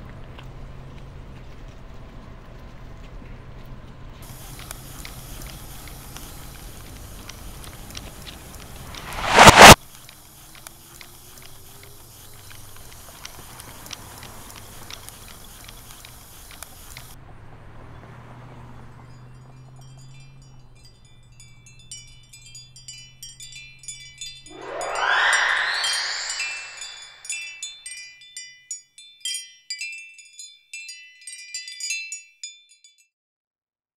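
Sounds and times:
light ticks: 0:03.6 - 0:08.8, 0:10.0 - 0:17.2
loud rush of noise: 0:08.7 - 0:09.8, 0:24.5 - 0:27.5
whoosh: 0:08.7 - 0:09.8, 0:24.5 - 0:27.6
high metallic chimes ringing: 0:20.3 - 0:32.8.

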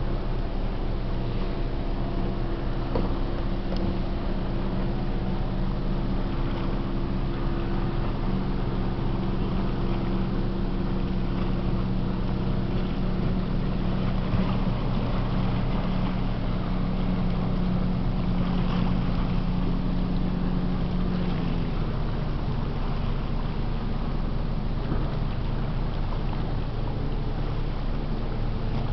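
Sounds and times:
ship engines droning: 0:00.0 - 0:28.9.

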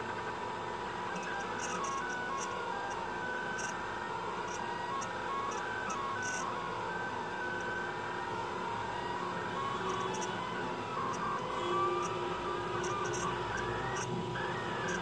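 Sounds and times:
constant printer hum: 0:00.0 - 0:15.0
stepper motors whining: 0:01.0 - 0:15.0.

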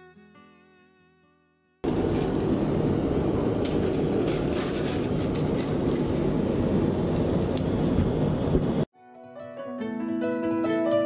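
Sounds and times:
airliner cabin noise: 0:01.8 - 0:08.9.

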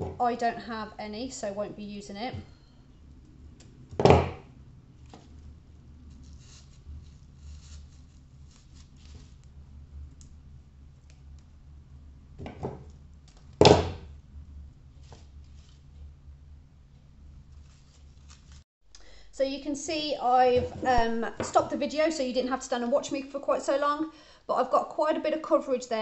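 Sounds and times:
dry stems rustling and clicking: 0:05.0 - 0:11.5, 0:17.0 - 0:18.6.

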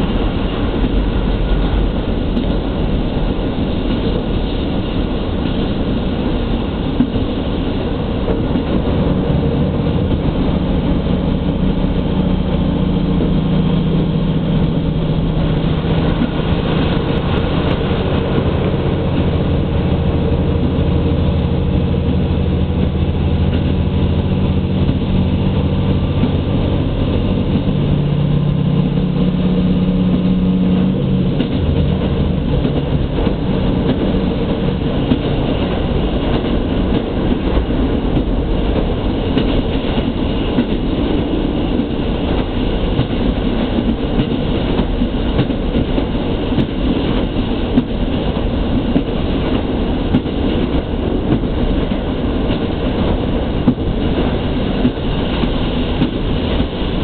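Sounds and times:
wheels rumbling on rails: 0:00.0 - 0:57.0
diesel engine low note: 0:08.8 - 0:35.1.

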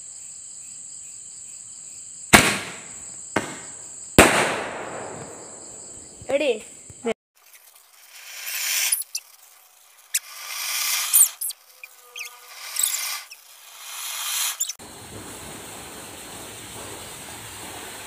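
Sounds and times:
hand-held firework low hiss: 0:02.3 - 0:06.2, 0:07.4 - 0:18.0
ground fireworks hissing: 0:02.3 - 0:18.0
thin high whistles: 0:07.4 - 0:14.8.

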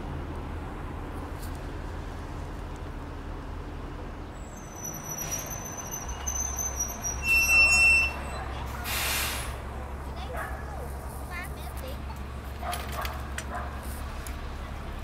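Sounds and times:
city bus running: 0:00.0 - 0:15.0
low traffic rumble: 0:00.0 - 0:15.0
high-pitched brake squeal: 0:04.4 - 0:09.6
air brake hisses: 0:04.8 - 0:09.6.

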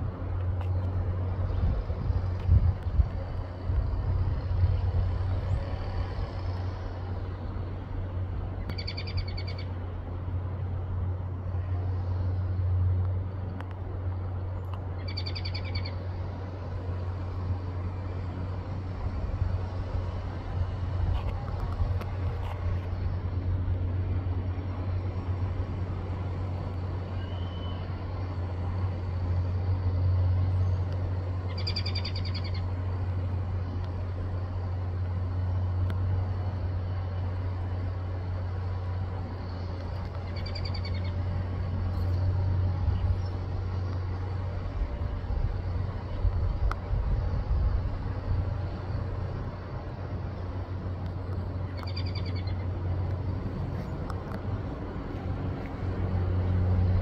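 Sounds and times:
steady low hum: 0:00.0 - 0:57.0
bird short high call: 0:27.2 - 0:27.9.

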